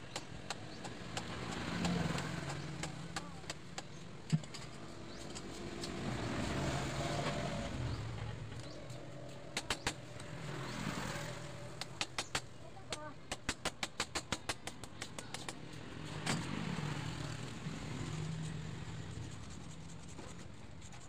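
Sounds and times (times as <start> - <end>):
road vehicle passing: 0.8 - 4.0, 4.7 - 12.8, 15.6 - 20.0.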